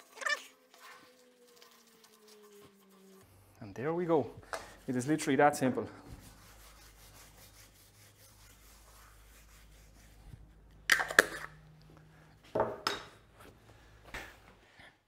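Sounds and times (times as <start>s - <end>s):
rubbing and scraping handling: 0.0s - 3.4s.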